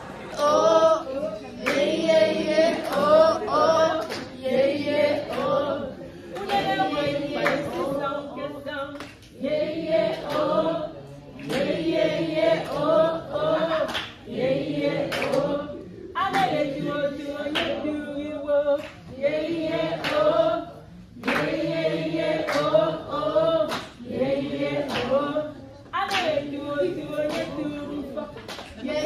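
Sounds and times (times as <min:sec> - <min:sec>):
group of voices singing: 0:00.0 - 0:29.0.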